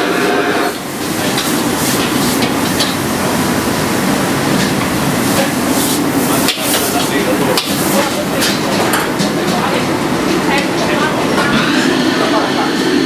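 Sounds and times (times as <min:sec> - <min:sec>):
wok burner rushing: 0:00.0 - 0:13.0
food sizzling in a wok: 0:00.1 - 0:08.8.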